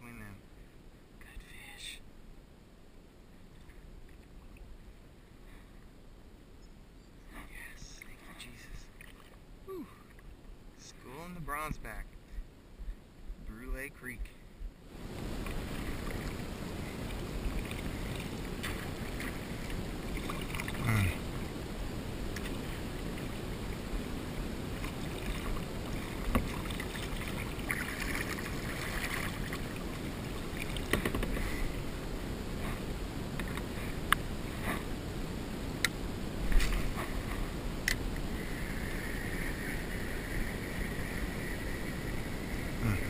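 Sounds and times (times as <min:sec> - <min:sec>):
steady water noise: 0:00.0 - 0:43.0
paddle strokes splashing: 0:15.0 - 0:35.0
paddle knocking hull: 0:24.8 - 0:31.5.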